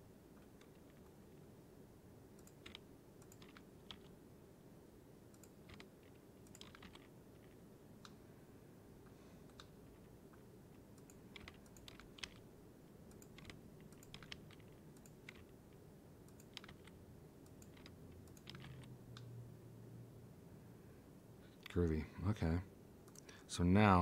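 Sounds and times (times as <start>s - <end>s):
keyboard and mouse clicks: 0.4s - 1.2s, 2.4s - 4.2s, 5.3s - 8.2s, 9.5s - 12.5s, 13.1s - 15.6s, 16.2s - 19.3s, 23.0s - 23.3s.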